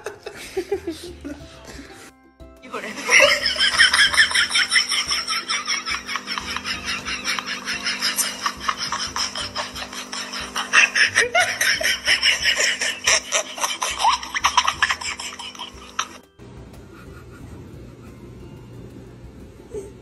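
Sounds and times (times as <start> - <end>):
person laughing in wheezes: 0.0 - 2.0, 3.1 - 16.2.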